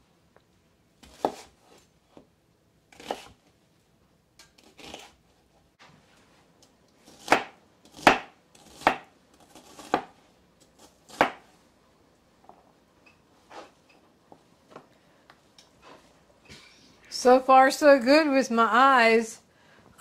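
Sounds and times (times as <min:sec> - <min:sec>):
knife chopping on cutting board: 0:01.0 - 0:01.8, 0:02.9 - 0:03.4, 0:07.1 - 0:10.2, 0:10.8 - 0:11.5.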